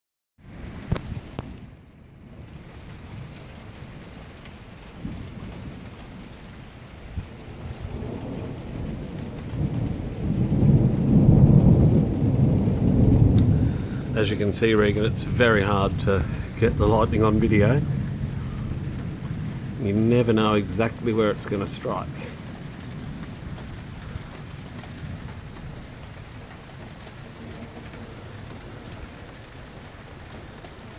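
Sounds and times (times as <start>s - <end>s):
steady rain: 0.4s - 30.9s
deep thunder rumbling: 4.9s - 30.9s.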